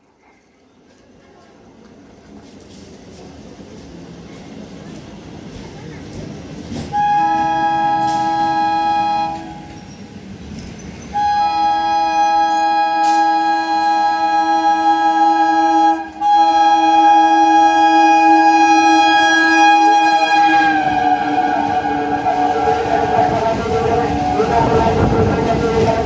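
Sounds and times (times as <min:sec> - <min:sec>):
train air horn blasts: 0:06.9 - 0:09.9, 0:11.1 - 0:26.0.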